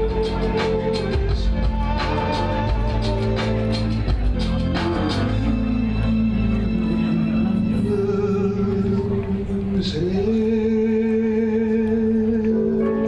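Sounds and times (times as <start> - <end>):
low bass: 0.0 - 13.0
music with long held notes: 0.0 - 13.0.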